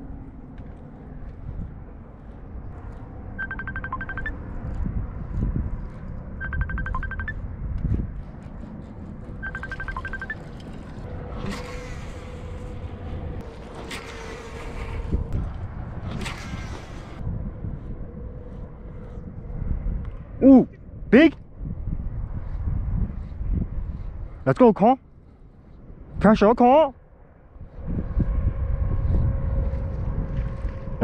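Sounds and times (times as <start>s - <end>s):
wind rumbling on microphone: 0.0s - 31.0s
electronic beeping tune: 3.4s - 4.4s, 6.4s - 7.4s, 9.4s - 10.4s.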